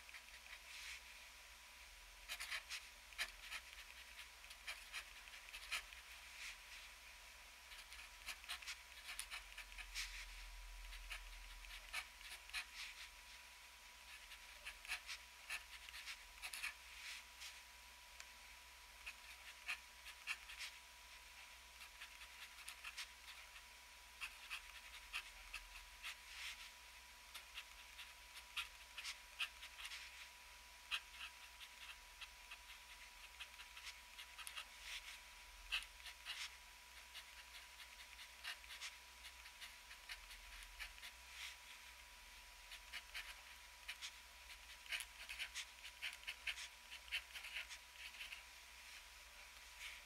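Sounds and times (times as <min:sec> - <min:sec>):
pen scratching on paper: 0:02.3 - 0:06.1, 0:07.7 - 0:10.3, 0:11.0 - 0:13.1, 0:14.1 - 0:16.8, 0:21.8 - 0:23.6, 0:27.3 - 0:30.2, 0:30.9 - 0:41.6, 0:42.7 - 0:48.4.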